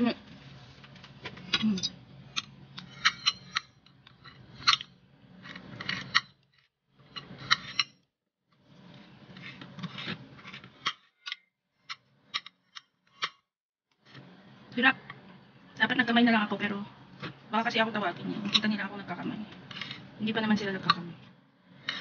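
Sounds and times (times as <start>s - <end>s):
cutlery scraping a plate: 1.6s - 6.4s, 7.1s - 8.1s.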